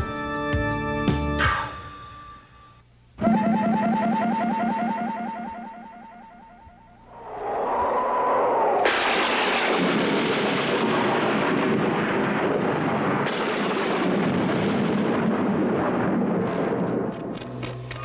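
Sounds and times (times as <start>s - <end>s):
storm rushing noise: 7.1s - 17.1s.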